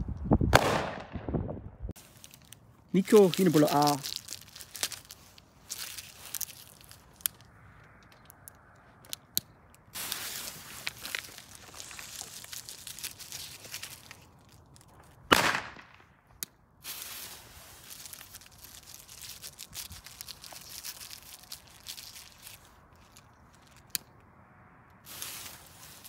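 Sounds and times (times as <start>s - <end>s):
firecracker bang: 0.5s - 1.5s, 15.3s - 16.0s.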